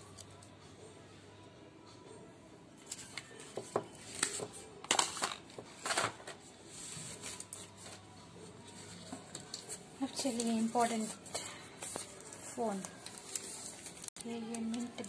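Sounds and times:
plastic rustling and scraping: 4.0 - 15.0.

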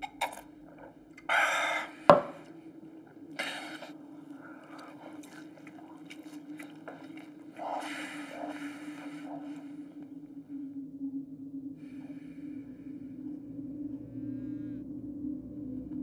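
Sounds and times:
chewing clicks: 0.0 - 10.1
wet gulping: 0.0 - 10.5
low steady hum: 0.0 - 16.0.

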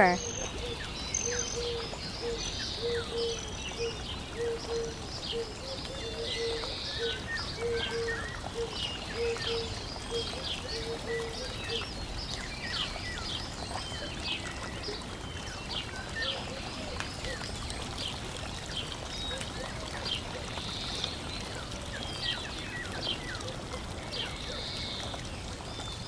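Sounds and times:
low repeated bird call: 0.0 - 12.2
birds chirping and trilling: 0.0 - 26.0.

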